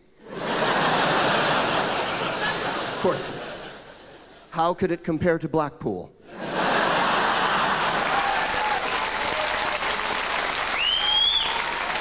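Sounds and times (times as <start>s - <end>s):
audience applauding: 6.7s - 12.0s
rising whistle: 10.7s - 11.7s.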